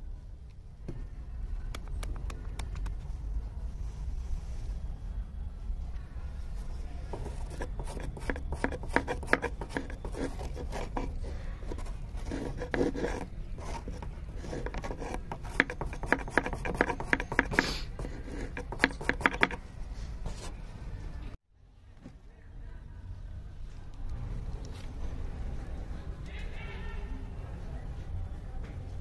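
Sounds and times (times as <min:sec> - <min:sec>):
wooden stick scraping on wood: 0:07.0 - 0:19.6.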